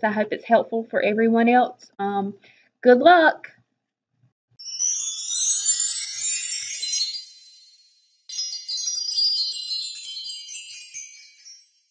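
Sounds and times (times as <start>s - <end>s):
high-pitched twinkling chimes: 4.6s - 11.9s.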